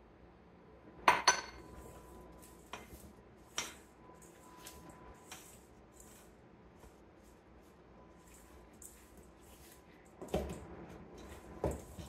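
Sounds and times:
spatula stirring mixture: 1.6 - 12.0.

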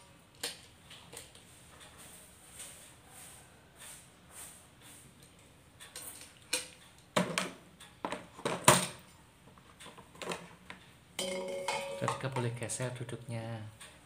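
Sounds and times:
plastic bottles clattering on tray: 6.0 - 9.0.

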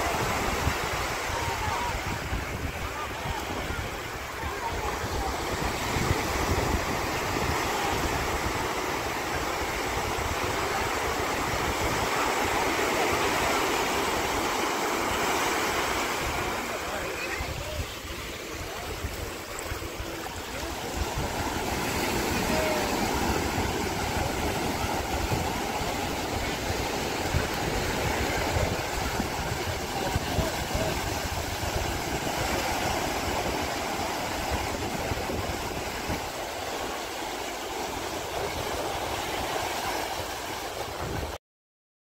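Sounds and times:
wind buffeting microphone: 0.0 - 14.6, 16.1 - 36.6
surf washing over sand: 0.0 - 41.4.

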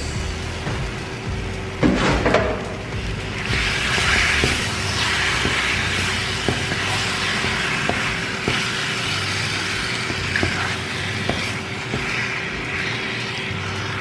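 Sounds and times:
chicken sizzling in a frying pan: 0.0 - 14.0
spatula scraping a pan: 3.4 - 14.0.

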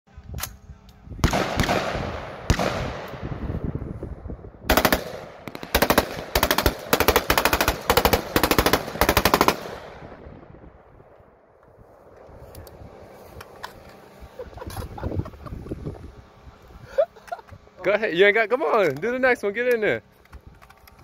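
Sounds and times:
rifle gunshots echoing: 1.2 - 3.4, 4.7 - 10.3
automatic rifle bursts: 4.7 - 9.8.

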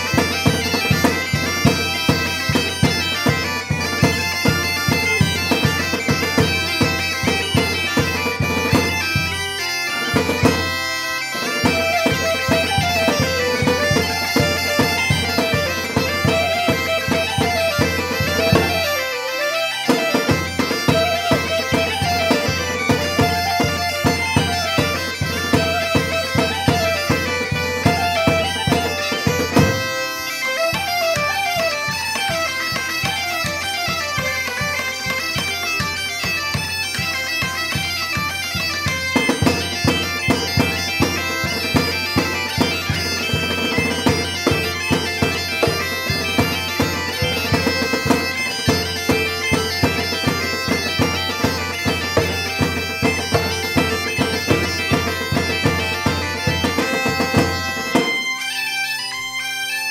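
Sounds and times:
clarinet: 0.0 - 36.3
bagpipes playing a lively tune: 0.0 - 59.9
fiddle: 0.0 - 59.9
hurdy-gurdy: 0.0 - 59.9.

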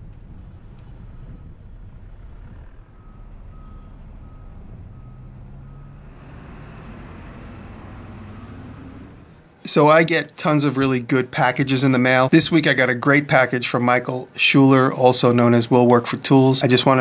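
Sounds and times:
vehicle engine: 0.0 - 9.7
street traffic rumble: 0.0 - 17.0
reversing alarm beeping: 1.1 - 9.3.

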